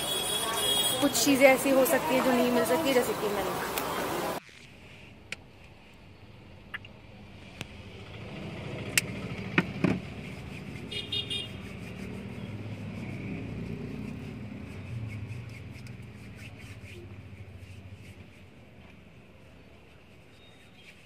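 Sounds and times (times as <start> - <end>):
vehicle engine rumbling past: 7.4 - 10.9, 11.5 - 18.2.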